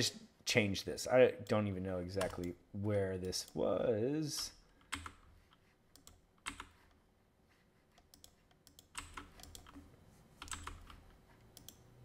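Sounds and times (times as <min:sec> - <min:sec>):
computer keyboard clicking: 0:04.8 - 0:05.2, 0:06.0 - 0:06.8, 0:08.0 - 0:11.8.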